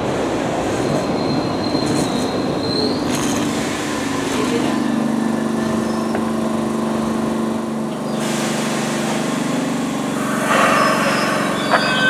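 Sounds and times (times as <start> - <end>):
subway car equipment hum: 0.0 - 12.0
loud rush of noise: 3.2 - 12.0
hiss: 8.0 - 12.0.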